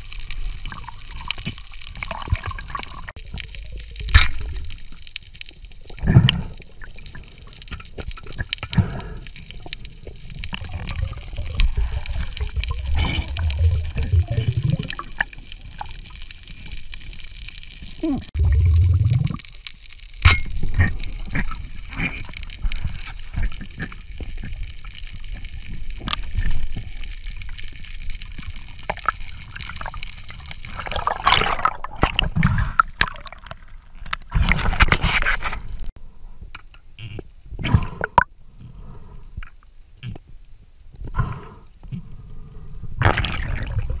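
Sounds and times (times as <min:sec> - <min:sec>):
water gurgling underwater: 0:00.0 - 0:04.9, 0:05.8 - 0:17.0, 0:17.6 - 0:19.6, 0:20.5 - 0:34.9, 0:43.0 - 0:44.0
rushes of water: 0:00.0 - 0:19.7, 0:20.5 - 0:35.9, 0:43.0 - 0:44.0.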